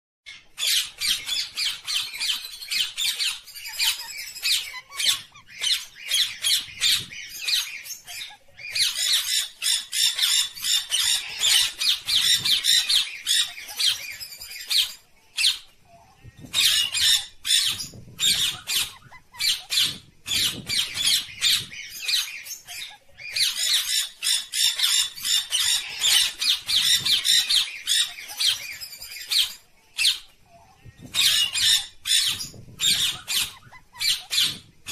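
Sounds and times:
parakeets squawking: 0:00.3 - 0:34.9.

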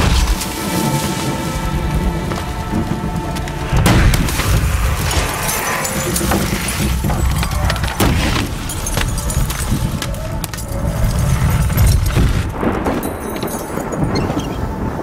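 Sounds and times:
heavy low rumble: 0:00.0 - 0:15.0
metal impacts and scraping: 0:03.5 - 0:10.8
broken glass tinkling: 0:05.1 - 0:14.6.

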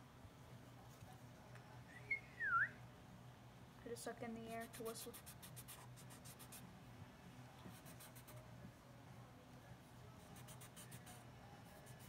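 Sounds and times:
marker scratching on cardboard: 0:04.5 - 0:06.6, 0:07.7 - 0:08.4, 0:10.3 - 0:11.2.

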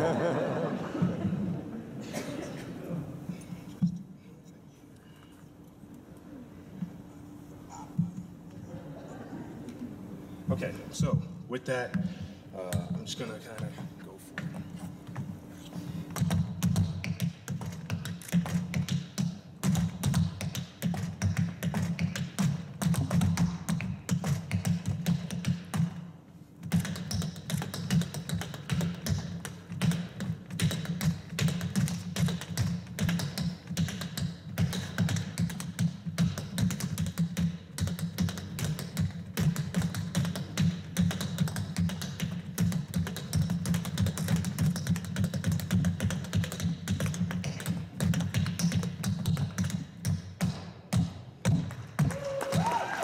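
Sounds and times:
tap shoes on wooden board: 0:26.6 - 0:52.7.

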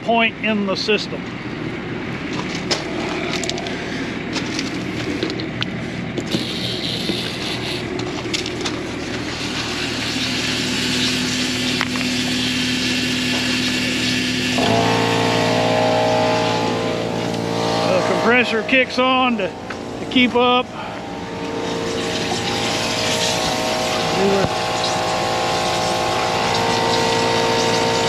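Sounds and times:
air compressor droning: 0:00.0 - 0:28.0
steady mechanical hum: 0:00.0 - 0:28.0
escaping air hissing: 0:06.3 - 0:07.9, 0:20.6 - 0:28.0.

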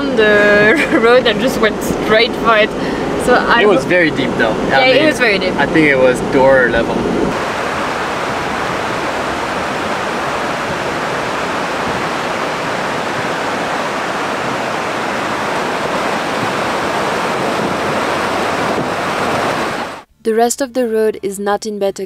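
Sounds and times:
river water rushing over rocks: 0:07.3 - 0:20.0.

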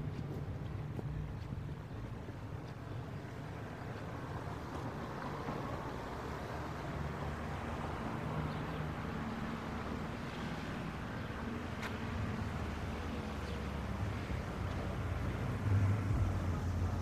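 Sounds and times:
distant road traffic rumble: 0:00.0 - 0:17.0.

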